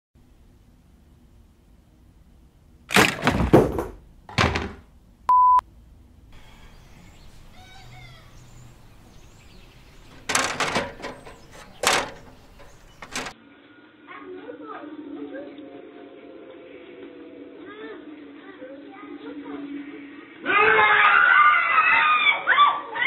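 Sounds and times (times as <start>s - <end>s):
man and stepladder crashing down: 2.9s - 4.8s, 10.0s - 13.4s
loud knocks and crashes: 2.9s - 4.9s, 10.0s - 13.4s
short steady beep: 5.3s - 5.6s
faint birds chirping: 6.2s - 13.3s.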